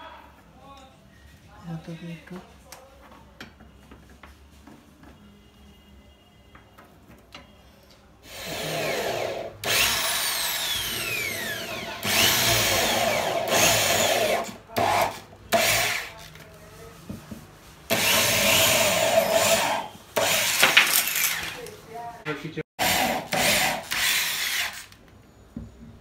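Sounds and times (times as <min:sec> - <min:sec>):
electric drill boring into wood: 0:08.2 - 0:16.1, 0:17.9 - 0:21.6, 0:22.8 - 0:25.0.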